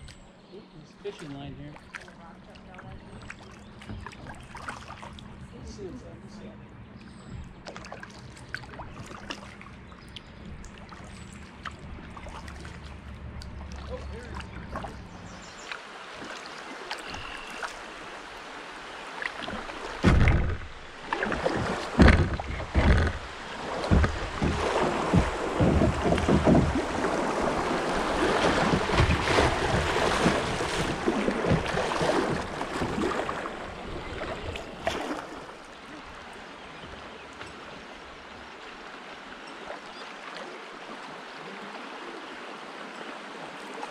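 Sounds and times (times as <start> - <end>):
water rushing and splashing: 0.8 - 6.5, 7.5 - 43.9
kayak hull thumps: 19.4 - 35.4.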